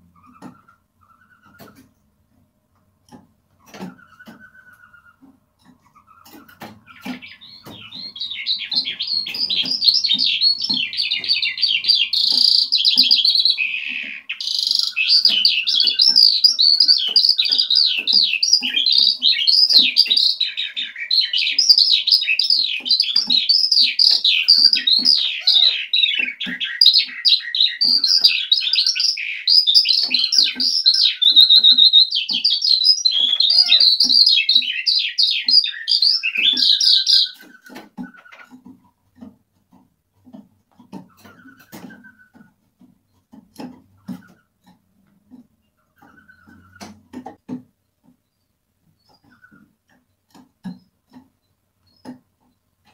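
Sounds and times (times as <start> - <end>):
skylark singing: 3.7 - 38.7.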